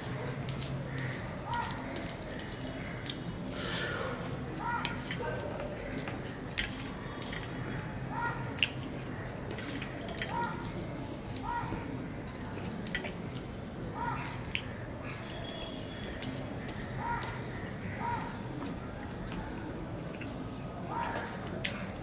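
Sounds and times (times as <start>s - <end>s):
mouth chewing and smacking: 18.2s - 22.0s.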